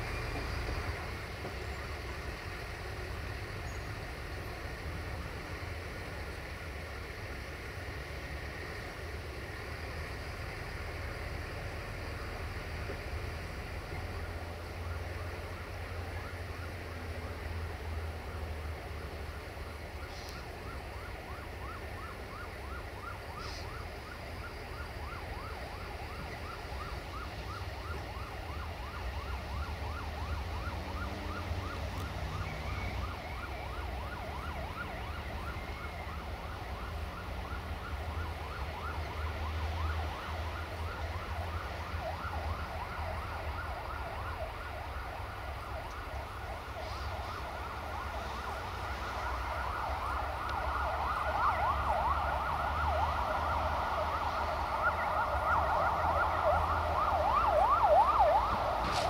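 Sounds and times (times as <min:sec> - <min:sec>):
train engine rumble: 0:00.0 - 0:59.0.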